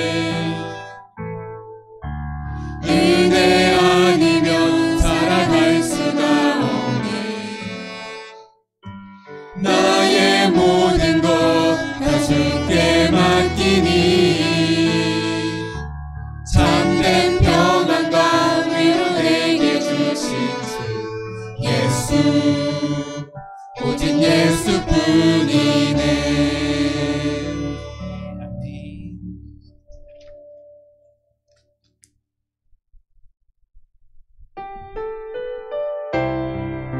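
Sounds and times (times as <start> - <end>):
mixed voices singing: 0.0 - 0.8, 2.8 - 8.0, 9.6 - 15.8, 16.5 - 28.0
keyboard: 0.0 - 31.4
violin: 9.6 - 15.8, 16.5 - 28.9.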